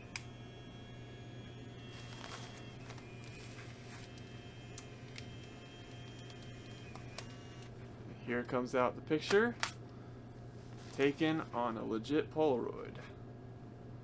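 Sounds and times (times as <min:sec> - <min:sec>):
camera motor whining: 0:00.0 - 0:07.8.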